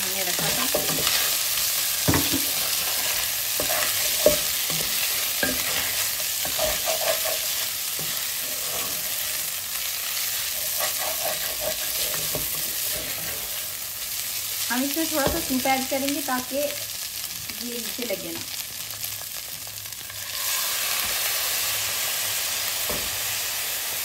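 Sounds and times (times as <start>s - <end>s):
spatula scraping pan: 0.0s - 13.8s
chicken sizzling in oil: 0.0s - 24.0s
spatula knocking pan: 2.0s - 8.2s, 15.2s - 15.6s.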